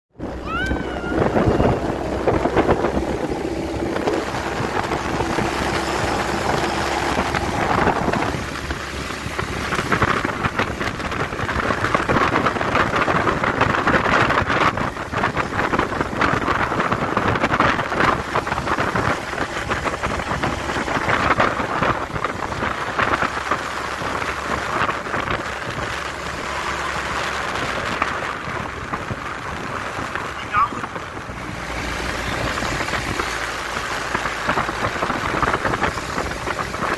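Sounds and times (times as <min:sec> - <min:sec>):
road noise: 0:00.1 - 0:36.9
truck engine rumble: 0:00.1 - 0:36.9
wind buffeting microphone: 0:00.2 - 0:36.9.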